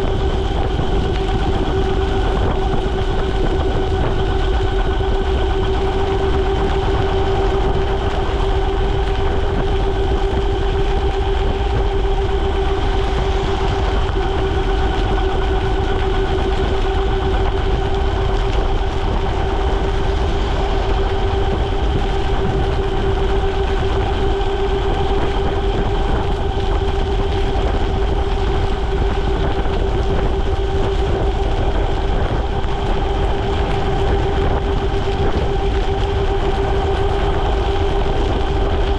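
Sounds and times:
wind rumble: 0:00.0 - 0:38.9.

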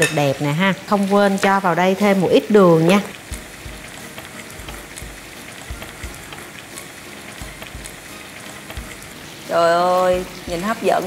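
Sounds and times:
pork sizzling in fat in a pan: 0:00.0 - 0:11.0
soft low thumps: 0:03.2 - 0:06.3.

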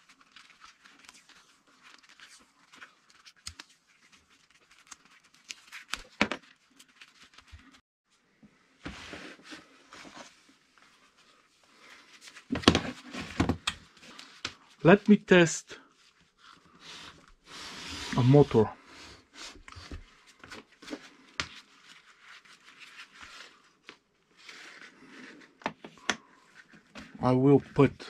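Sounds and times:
tape crackling and rustling: 0:00.0 - 0:07.8, 0:09.2 - 0:15.2, 0:19.5 - 0:27.9.

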